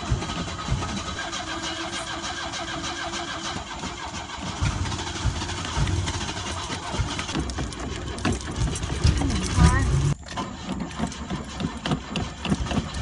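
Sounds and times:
car engine cranking: 0:00.0 - 0:13.0.

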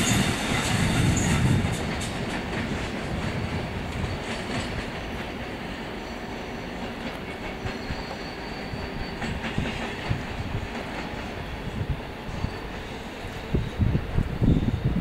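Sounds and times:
train wheels rumbling and clicking: 0:00.0 - 0:15.0
high wheel squeal: 0:06.0 - 0:10.1, 0:11.7 - 0:15.0.

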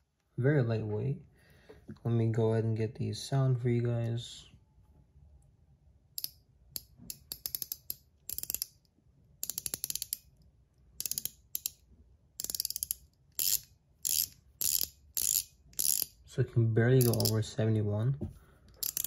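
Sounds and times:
fidget ring ratcheting clicks: 0:06.2 - 0:11.8, 0:12.4 - 0:16.2, 0:17.0 - 0:17.4, 0:18.7 - 0:19.0.

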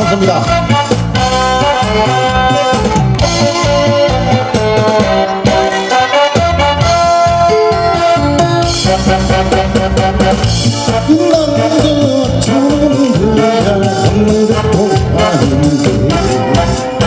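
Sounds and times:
beat-driven instrumental music: 0:00.0 - 0:17.0
man singing into a microphone: 0:10.8 - 0:17.0.

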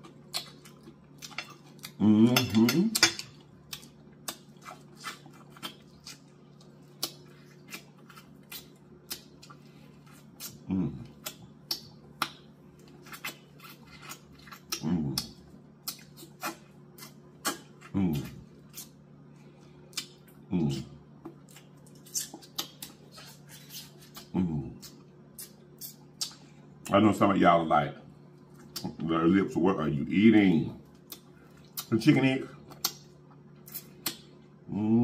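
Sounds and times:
mouth smacks and crackles: 0:03.7 - 0:19.0, 0:19.9 - 0:20.4, 0:21.2 - 0:26.9, 0:30.9 - 0:32.0, 0:32.6 - 0:34.6
person humming mm: 0:10.5 - 0:11.2, 0:14.7 - 0:15.3, 0:24.2 - 0:24.9.

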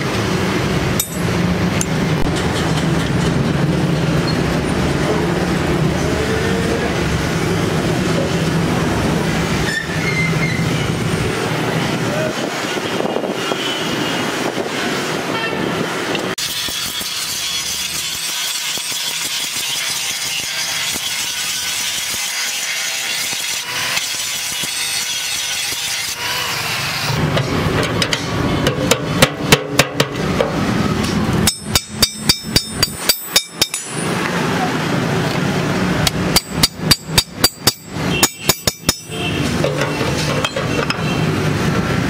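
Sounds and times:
angle grinder grinding steel: 0:16.4 - 0:27.2
hammer blows on metal: 0:31.4 - 0:34.1, 0:36.0 - 0:40.7.

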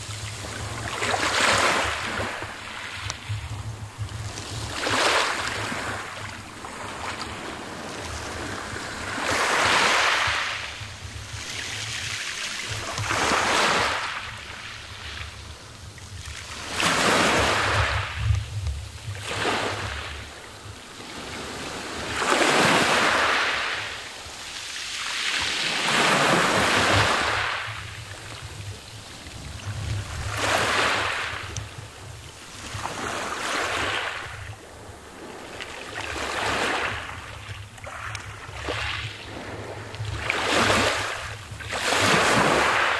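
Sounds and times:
waves washing up pebble beach: 0:00.0 - 0:15.0, 0:16.3 - 0:18.2, 0:19.1 - 0:20.4, 0:21.0 - 0:28.0, 0:28.8 - 0:31.8, 0:32.5 - 0:42.9
wind rumble on microphone: 0:00.0 - 0:24.5, 0:25.4 - 0:42.9.

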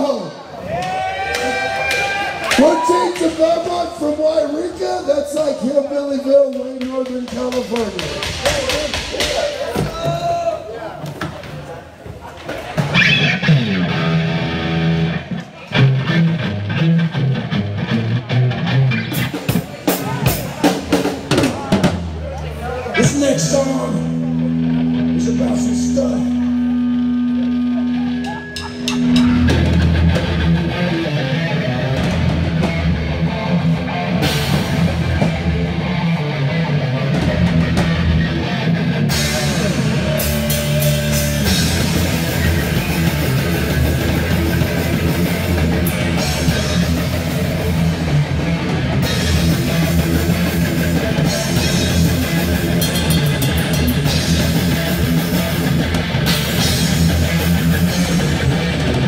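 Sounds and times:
live rock band playing: 0:12.7 - 0:59.0
cymbals crashing: 0:27.8 - 0:30.4.

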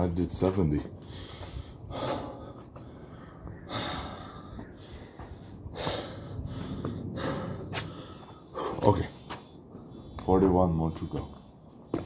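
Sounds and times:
man breathing hard: 0:01.0 - 0:10.2.

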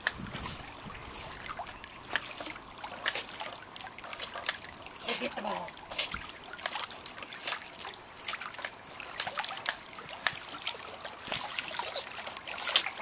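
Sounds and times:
pool water splashing: 0:00.0 - 0:13.0.

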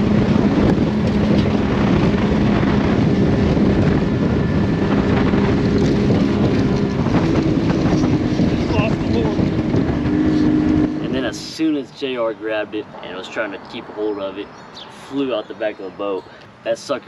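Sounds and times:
outboard motor running: 0:00.0 - 0:11.4
wind buffeting microphone: 0:00.0 - 0:16.2.

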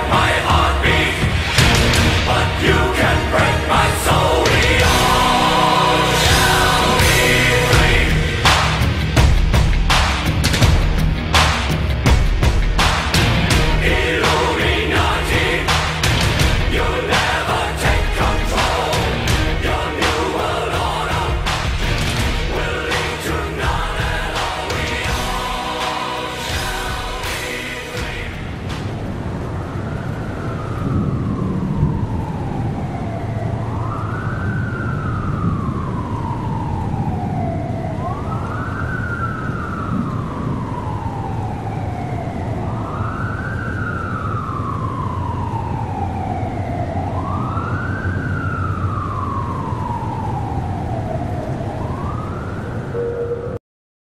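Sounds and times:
siren wailing: 0:00.0 - 0:09.3, 0:13.1 - 0:53.6
low rumble: 0:00.0 - 0:38.3.

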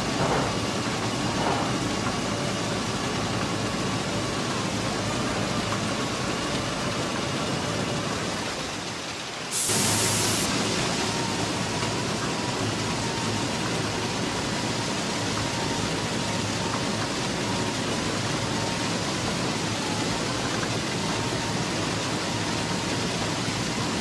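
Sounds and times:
heavy track machinery running: 0:00.0 - 0:24.0
brief hiss: 0:09.5 - 0:10.6.

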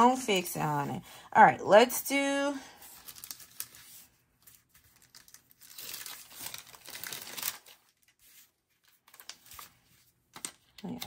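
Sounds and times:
paper stickers crinkling: 0:02.8 - 0:11.0.

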